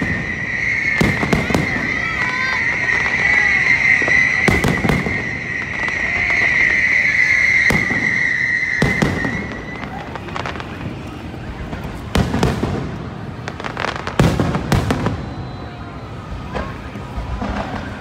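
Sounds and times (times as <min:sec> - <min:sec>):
high whistle-like tone: 0:00.0 - 0:10.1, 0:14.8 - 0:17.0.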